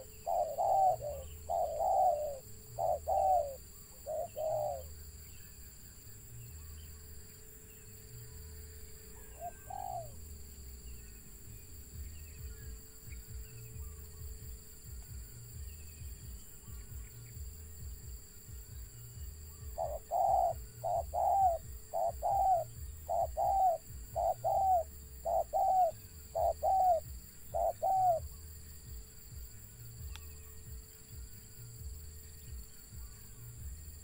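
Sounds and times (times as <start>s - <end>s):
dove cooing: 0.0s - 4.9s, 9.2s - 10.2s, 19.6s - 28.3s.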